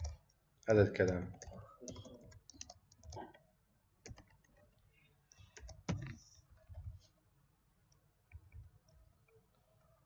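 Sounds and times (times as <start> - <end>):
computer keyboard keystrokes: 1.0 - 3.3, 4.0 - 4.6, 5.6 - 6.2.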